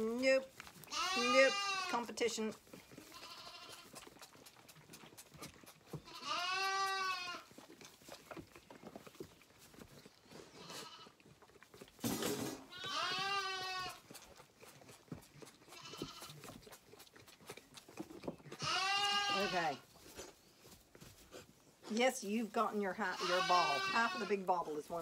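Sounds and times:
lambs bleating: 0.8s - 2.1s, 3.0s - 4.0s, 6.0s - 7.5s, 10.6s - 11.2s, 12.7s - 14.0s, 15.7s - 16.5s, 18.5s - 19.8s, 23.0s - 24.7s.

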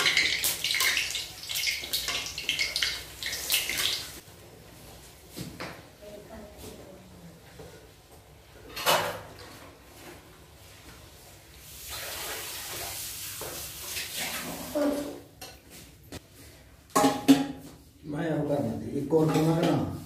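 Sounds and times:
hot oil sizzling: 0.0s - 4.2s, 11.6s - 15.2s.

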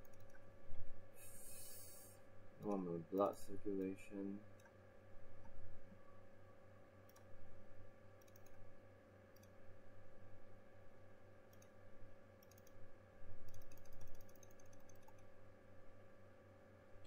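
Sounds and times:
computer mouse clicking: 0.0s - 0.4s, 2.6s - 4.0s, 4.6s - 4.8s, 7.1s - 7.3s, 8.2s - 8.6s, 9.3s - 9.6s, 11.5s - 11.8s, 12.4s - 12.8s, 13.5s - 15.3s
low electrical hum: 0.0s - 17.0s.

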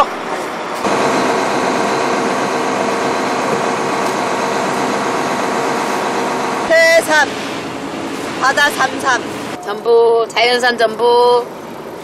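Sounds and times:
boat engine running: 0.0s - 9.6s.

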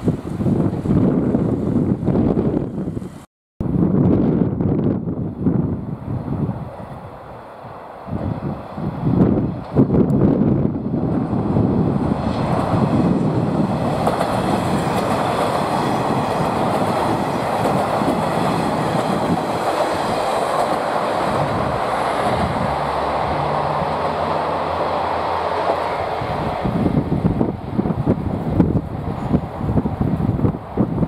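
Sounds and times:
train wheels clacking on rails: 11.1s - 27.5s.

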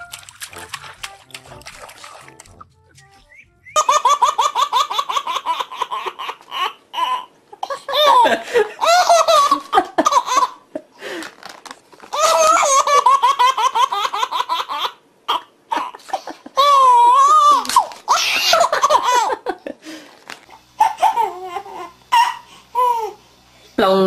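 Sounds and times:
baby laughing: 3.7s - 10.6s, 12.1s - 19.6s, 20.8s - 23.2s.

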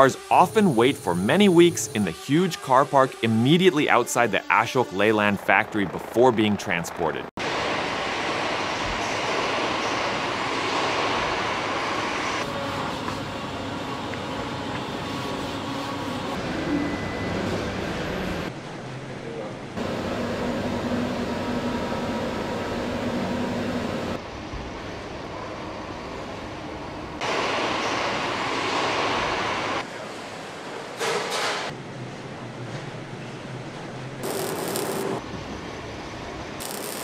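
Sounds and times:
industrial machinery noise: 0.0s - 19.0s, 19.6s - 31.8s, 34.1s - 37.0s.

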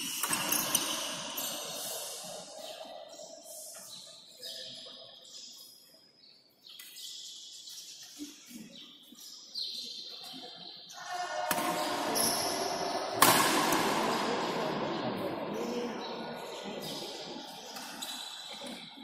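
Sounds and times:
shoes squeaking on court floor: 0.0s - 2.0s, 17.6s - 18.7s
rackets hitting shuttlecock: 11.5s - 12.2s, 12.8s - 14.8s.

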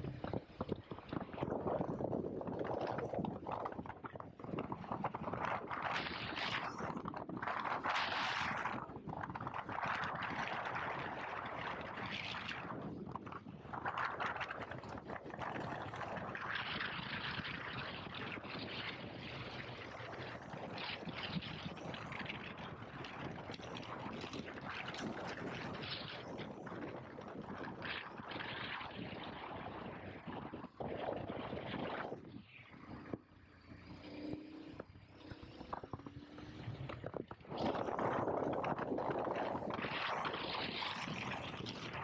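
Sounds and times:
wind rushing over microphone: 0.0s - 42.0s
motorcycle running: 32.8s - 40.2s.

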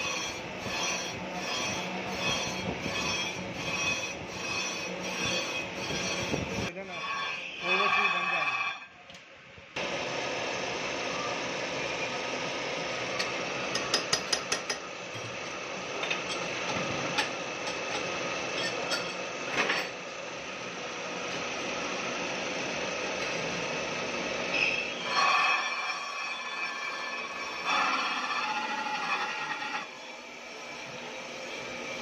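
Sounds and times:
grinding machine running: 0.0s - 8.8s.

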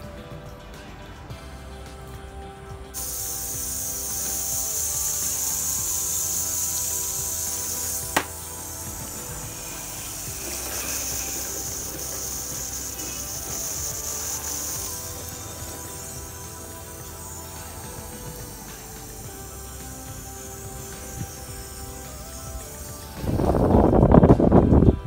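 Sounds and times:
soft background music: 0.0s - 25.0s
water sprayer hissing: 2.9s - 24.2s
sharp click: 8.0s - 8.4s.

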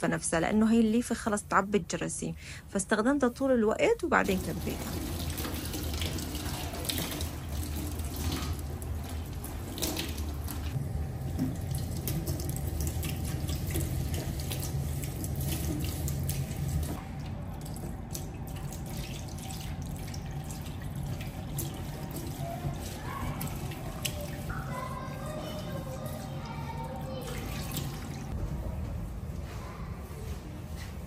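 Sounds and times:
tap water running into sink: 4.3s - 24.5s.

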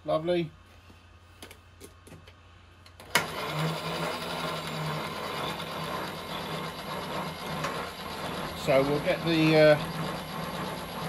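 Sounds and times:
milling machine power feed whirring: 3.0s - 11.0s.

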